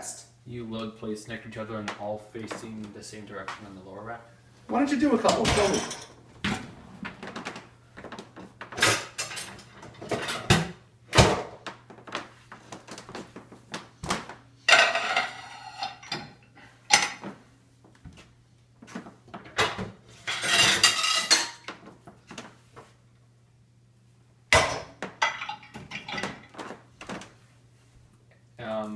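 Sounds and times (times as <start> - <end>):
plates clattering in dishwasher rack: 5.2 - 6.2, 8.7 - 11.6, 14.7 - 17.4, 19.5 - 21.8, 24.5 - 26.8.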